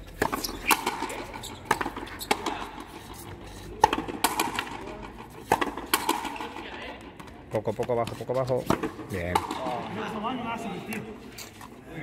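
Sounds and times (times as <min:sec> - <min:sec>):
racket striking rubber ball: 0:00.1 - 0:02.8, 0:03.8 - 0:06.6, 0:07.2 - 0:09.8.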